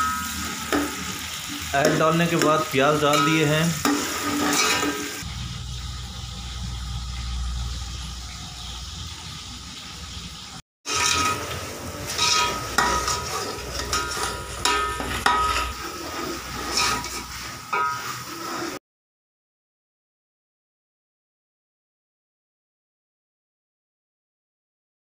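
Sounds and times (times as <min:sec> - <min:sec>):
metal spoon scraping a pot: 0:00.0 - 0:02.1, 0:03.1 - 0:05.3, 0:10.9 - 0:18.8
vegetables sizzling in oil: 0:00.0 - 0:18.8.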